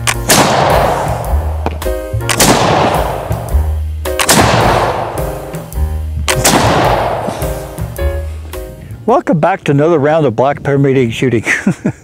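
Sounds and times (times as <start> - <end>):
gunshots with echo: 0.0 - 3.6, 4.2 - 5.5, 6.3 - 7.8
upbeat background music: 0.0 - 9.6.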